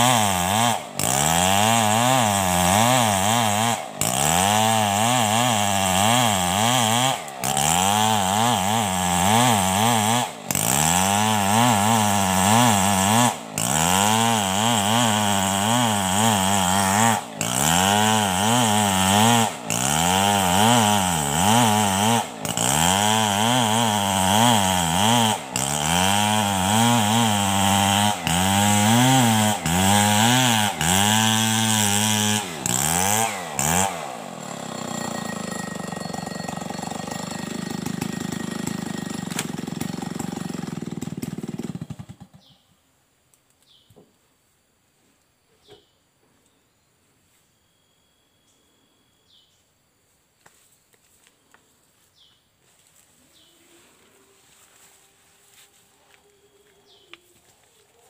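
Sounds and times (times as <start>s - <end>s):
chainsaw ripping a log: 0.0s - 42.5s.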